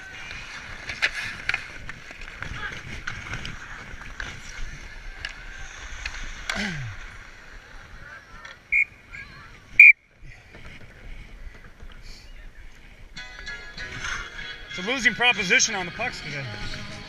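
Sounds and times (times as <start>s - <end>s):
skates scraping on ice: 0.0s - 8.7s
hockey sticks clicking: 0.2s - 4.6s.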